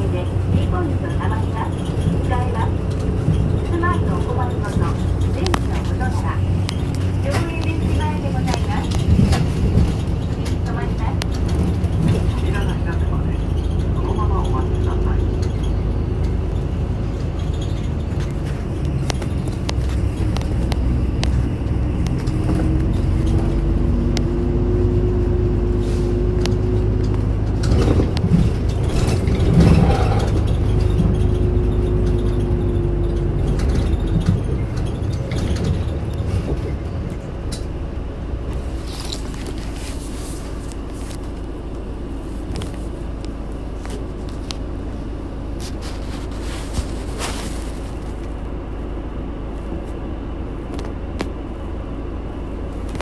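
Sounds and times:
bus diesel engine whine: 0:00.0 - 0:53.0.

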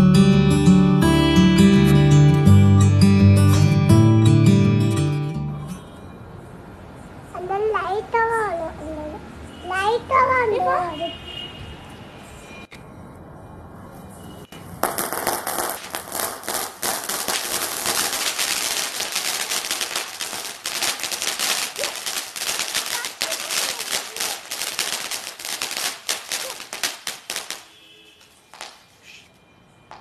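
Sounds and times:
fountain firework hissing and crackling: 0:14.6 - 0:27.7.

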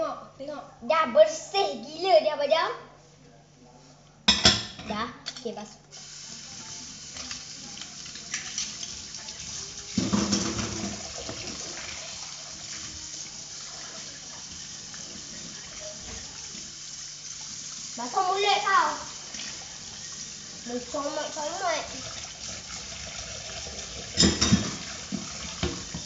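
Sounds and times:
dishes knocking: 0:04.3 - 0:04.9, 0:10.0 - 0:11.6, 0:24.1 - 0:26.0
tap water running into sink: 0:05.9 - 0:26.0.

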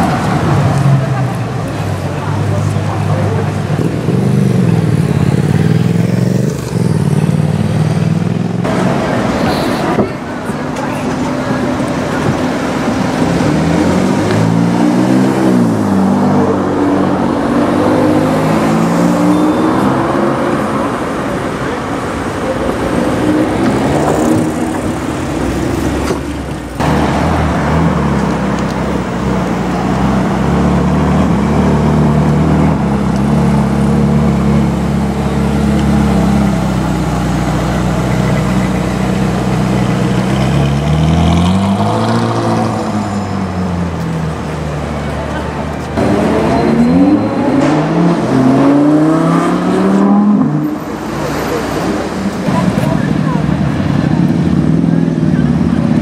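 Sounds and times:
car engine revving: 0:00.0 - 0:56.0
low engine drone of traffic: 0:00.0 - 0:56.0
street traffic: 0:00.0 - 0:56.0.

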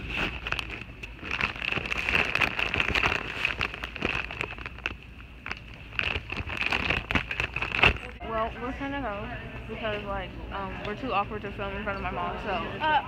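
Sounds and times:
chips crunching: 0:00.2 - 0:08.2.

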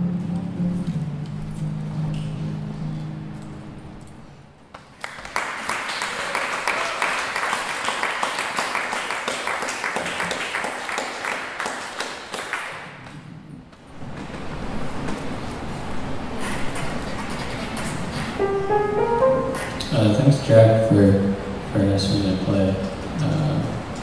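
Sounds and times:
acoustic guitar low notes: 0:00.0 - 0:04.4
audience applauding: 0:04.8 - 0:13.2.

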